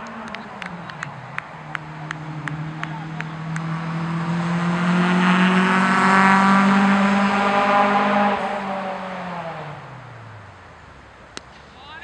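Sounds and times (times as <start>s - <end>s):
vehicle engine passing by: 0.0s - 10.7s.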